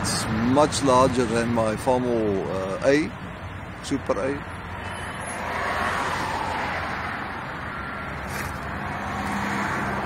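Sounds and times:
road noise: 0.0 - 10.0
vehicle engine hum: 0.0 - 10.0.

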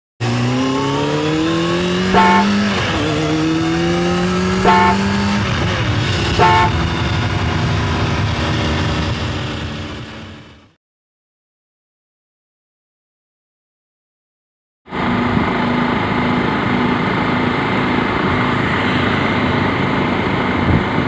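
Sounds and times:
vehicle engine accelerating: 0.2 - 10.8, 14.9 - 21.0.

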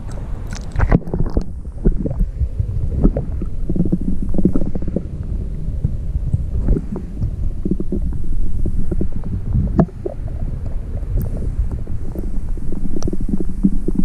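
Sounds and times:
underwater rumble of water: 0.0 - 14.0
dull knocks underwater: 5.8 - 14.0.

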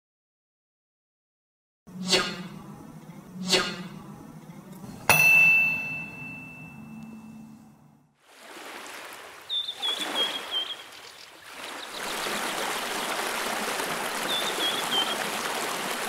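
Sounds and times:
stream running water: 8.2 - 16.0
small bird chirping: 9.5 - 12.1.

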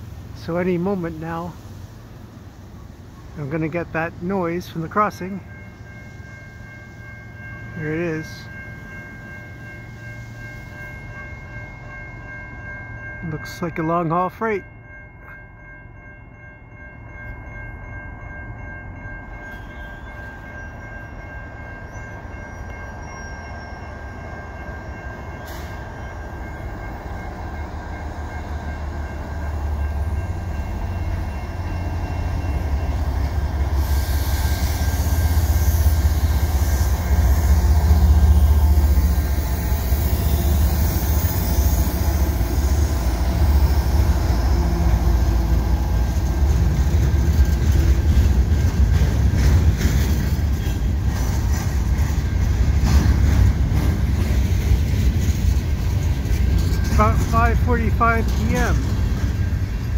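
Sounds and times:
diesel locomotives rumbling: 0.0 - 59.9
railroad crossing bell: 0.0 - 59.9
train wheels on rail: 15.2 - 59.9.

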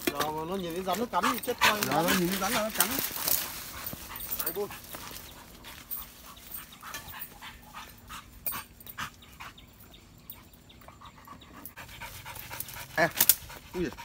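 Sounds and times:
leaves and stems rustling: 0.0 - 8.4
dog panting and sniffing: 0.7 - 14.0.

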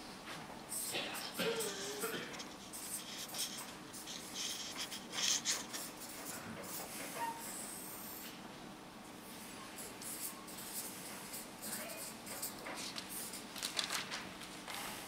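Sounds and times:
marker pen scratching on paper: 0.8 - 7.4, 9.8 - 13.5.

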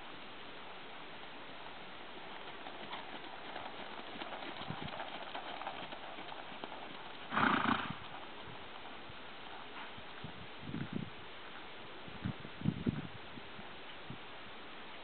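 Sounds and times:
hoofbeats on sand: 2.2 - 10.4.

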